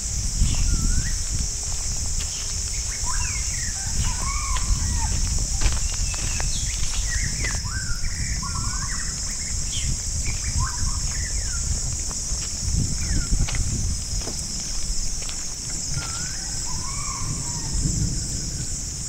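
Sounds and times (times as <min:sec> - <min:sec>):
high-pitched insect drone: 0:00.0 - 0:19.0
birds chirping and trilling: 0:00.4 - 0:11.9, 0:13.0 - 0:13.5, 0:15.7 - 0:17.8.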